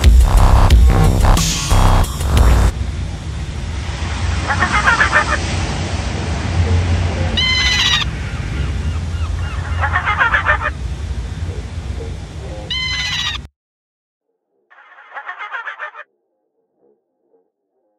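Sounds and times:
low rumble: 0.0s - 4.6s
high-pitched shrieking calls: 7.4s - 10.7s, 12.7s - 13.5s, 14.7s - 16.1s
stuttering cackle: 14.7s - 16.1s.

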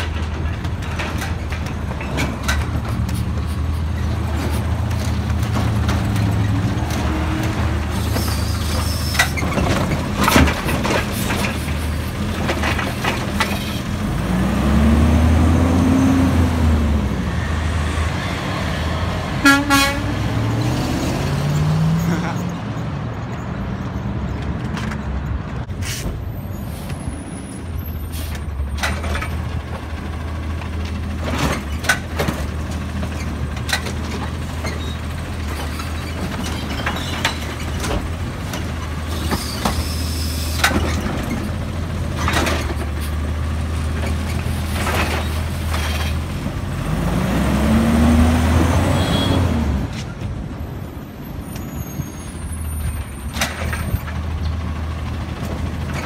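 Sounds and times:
air brakes hissing: 25.8s - 27.1s.

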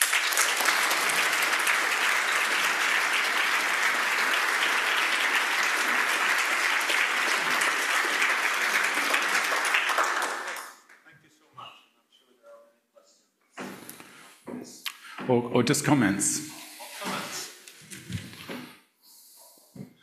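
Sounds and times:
audience applauding: 0.0s - 11.0s.

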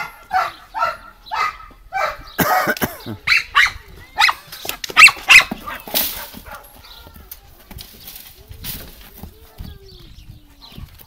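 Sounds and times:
dog barking: 0.0s - 2.5s, 3.3s - 4.4s, 5.0s - 6.7s.

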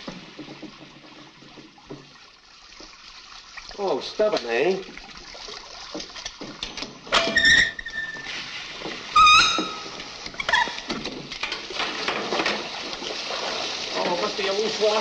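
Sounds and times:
short high-pitched squeak: 7.2s - 8.4s, 9.2s - 10.9s
water spraying hiss: 12.7s - 15.0s.

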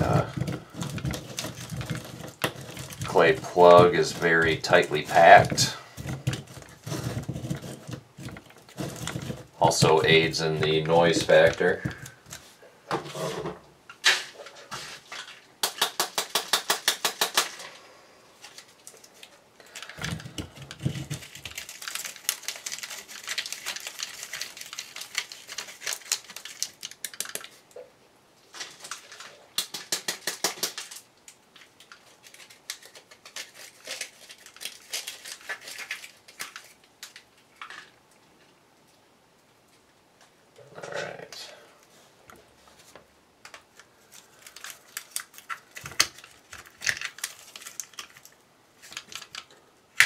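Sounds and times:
knife scraping paper casing: 0.0s - 9.5s
handling noise: 0.0s - 15.5s.

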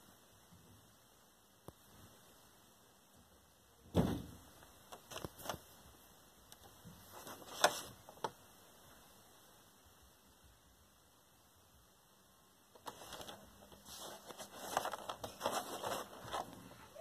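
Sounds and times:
rubbing on cardboard box: 12.8s - 16.5s.

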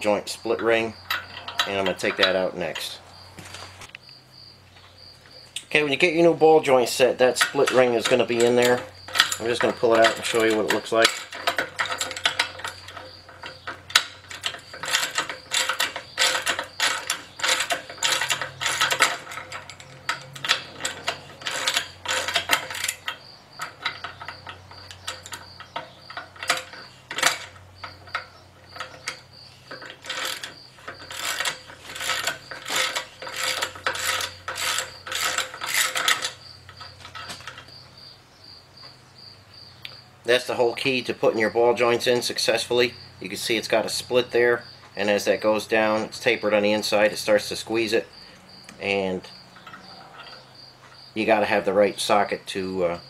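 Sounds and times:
ratchet wrench clicking: 7.4s - 37.8s.

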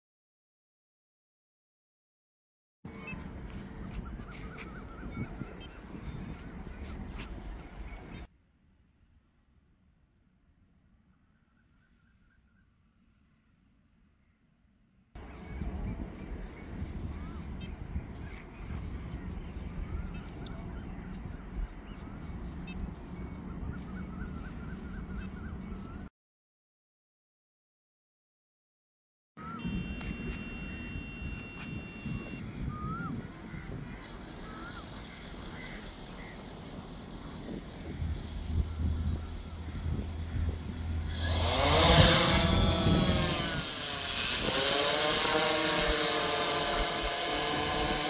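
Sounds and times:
warbling bird calls: 2.9s - 8.3s, 15.2s - 26.1s, 32.0s - 48.0s
wind rumble on microphone: 2.9s - 8.3s, 15.2s - 26.1s, 29.6s - 48.0s
pulsing high insect buzz: 29.4s - 48.0s.

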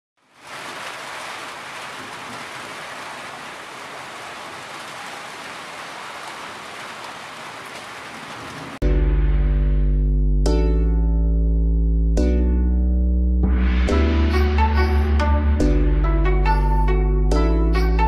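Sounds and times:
steady rain falling: 0.2s - 8.8s.

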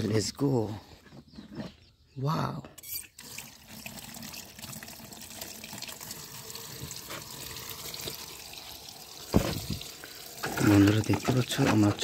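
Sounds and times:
tap water splashing into tub: 6.7s - 12.0s.

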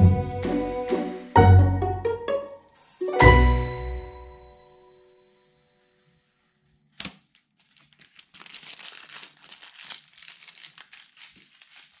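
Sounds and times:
plastic film crackling: 6.9s - 12.0s.

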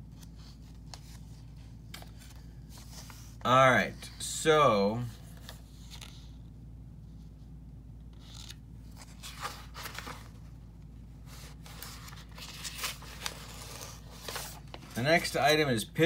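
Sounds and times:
steady low hum: 0.0s - 16.0s
paper rustling and scraping: 8.2s - 10.5s, 11.2s - 15.3s.

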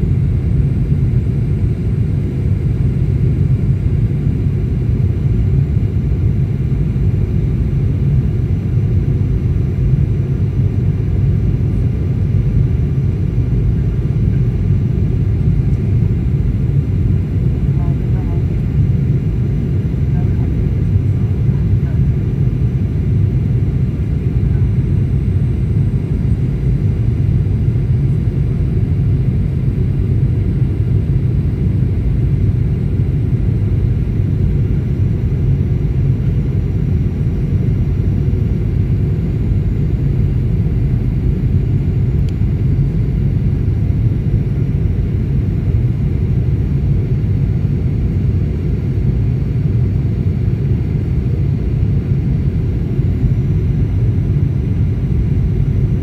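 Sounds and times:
aircraft cabin low rumble: 0.0s - 56.0s.

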